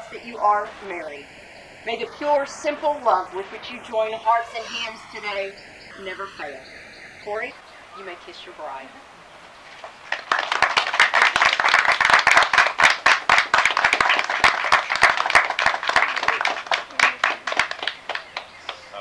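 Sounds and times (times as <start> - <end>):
crowd applauding: 9.9 - 18.8.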